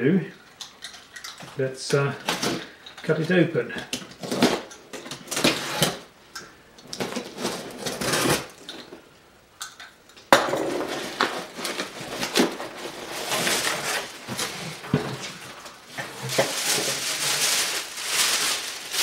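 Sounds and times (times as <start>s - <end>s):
knife slitting packing tape: 7.0s - 8.5s
cardboard flaps rustling: 10.8s - 19.0s.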